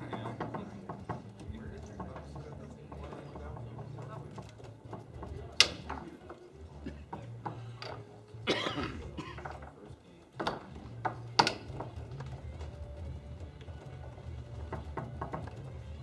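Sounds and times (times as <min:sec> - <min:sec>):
foosball ball clacking: 0:00.0 - 0:06.3, 0:10.4 - 0:12.5, 0:14.6 - 0:16.0.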